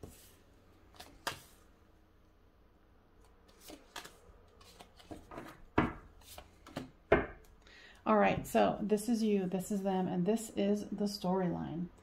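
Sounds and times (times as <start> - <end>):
cards laid on wooden table: 0.9 - 1.6, 3.5 - 7.5.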